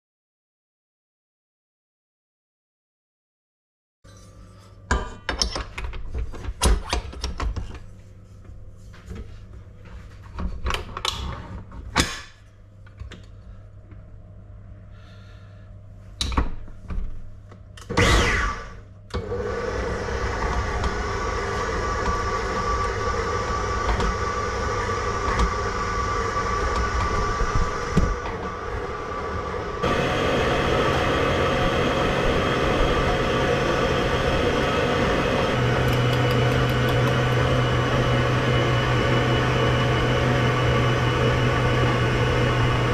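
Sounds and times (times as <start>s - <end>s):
stand mixer motor running: 18.0s - 42.9s.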